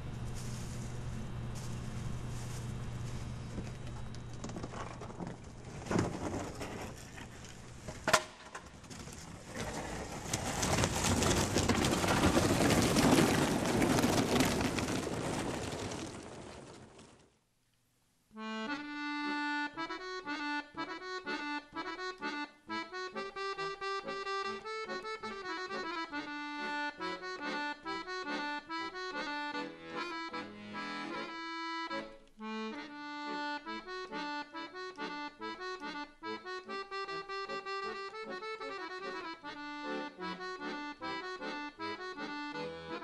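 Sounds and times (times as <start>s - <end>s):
accordion music: 18.3s - 43.0s.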